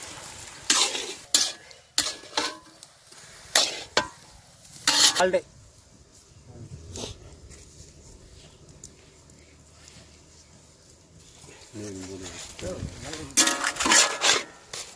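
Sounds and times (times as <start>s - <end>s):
low sizzle of frying: 0.0s - 14.9s
metal spatula scraping pan: 0.6s - 2.8s, 3.4s - 4.2s, 4.8s - 5.3s, 13.4s - 14.9s.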